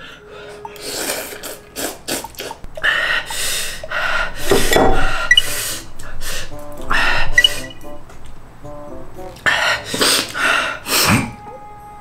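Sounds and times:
wet slurping of noodles: 0:00.8 - 0:02.6.

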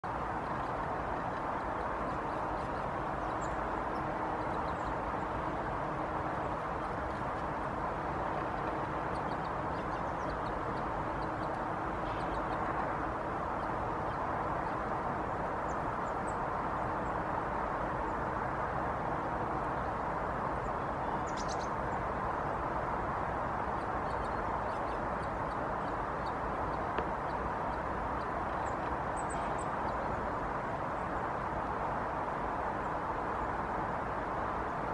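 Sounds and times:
city traffic hiss: 0:00.0 - 0:34.9
blue tits chirping: 0:00.2 - 0:12.9, 0:21.0 - 0:21.8, 0:23.6 - 0:31.4.

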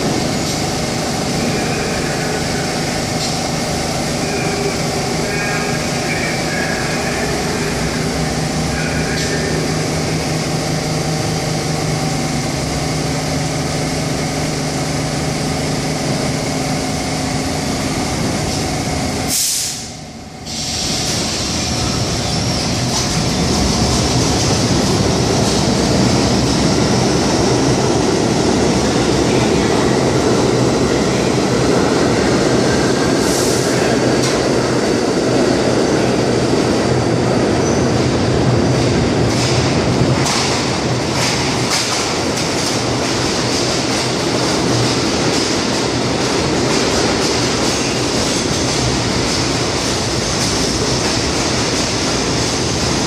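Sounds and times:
subway train hum with held tones: 0:00.0 - 0:53.0
train wheels rumbling on rail: 0:00.0 - 0:53.0.

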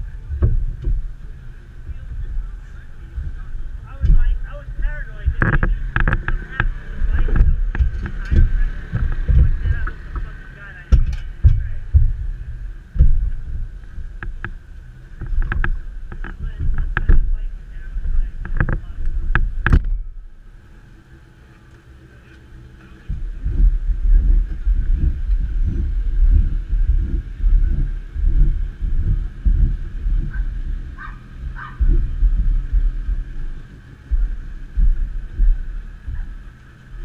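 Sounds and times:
wind buffeting microphone: 0:00.0 - 0:37.0
sharp knocks: 0:00.3 - 0:01.2, 0:05.1 - 0:10.3, 0:10.9 - 0:14.6.

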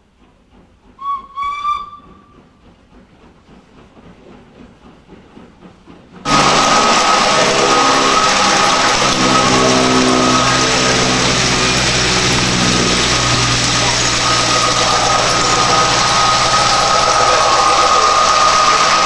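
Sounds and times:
steam train whistle: 0:01.0 - 0:02.5, 0:06.3 - 0:19.0
loud rushing noise with hum: 0:06.3 - 0:19.0.

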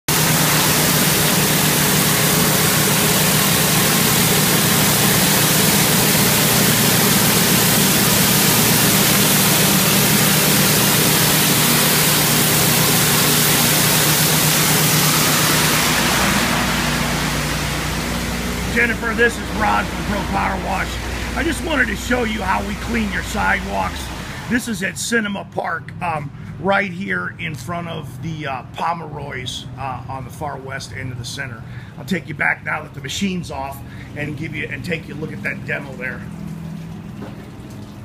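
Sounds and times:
pressure washer engine hum: 0:00.0 - 0:25.2, 0:32.8 - 0:38.0
high-pressure water jet hissing: 0:00.1 - 0:24.8.

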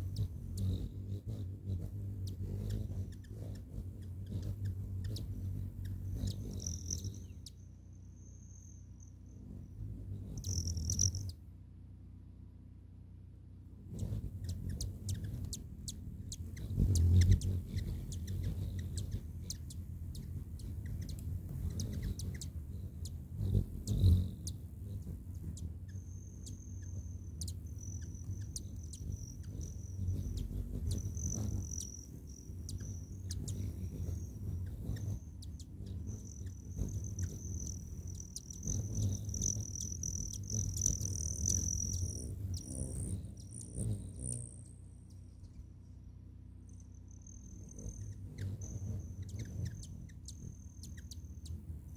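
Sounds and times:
hummingbird wing hum: 0:00.0 - 0:51.9.

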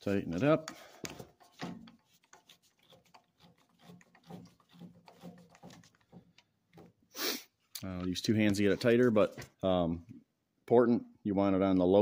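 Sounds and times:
drill chuck clicking and rubbing: 0:01.0 - 0:07.1.

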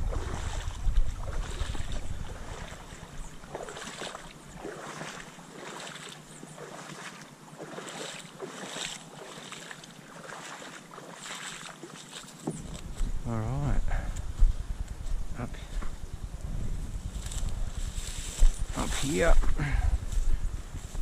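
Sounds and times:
wind buffeting microphone: 0:00.0 - 0:04.8, 0:12.5 - 0:21.0
footsteps wading through water: 0:00.0 - 0:13.2.

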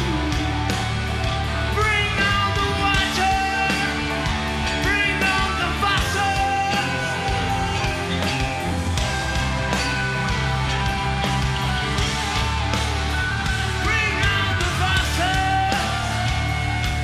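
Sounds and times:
male lead vocal: 0:00.0 - 0:01.0, 0:01.6 - 0:10.3, 0:13.5 - 0:17.0
hard rock band playing: 0:00.0 - 0:17.0.

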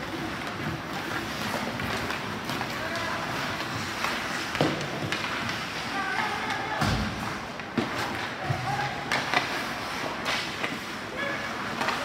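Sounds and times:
hockey sticks knocking puck: 0:00.0 - 0:12.0.

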